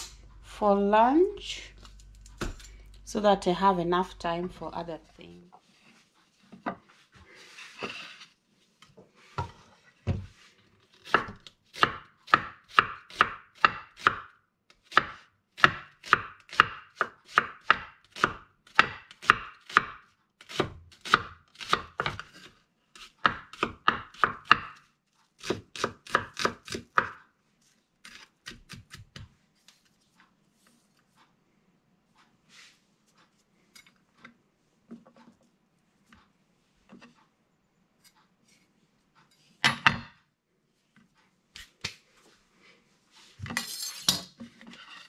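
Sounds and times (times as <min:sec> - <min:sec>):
knife chopping on wooden board: 0:11.0 - 0:14.3, 0:14.9 - 0:22.4, 0:23.0 - 0:24.8, 0:25.4 - 0:27.2.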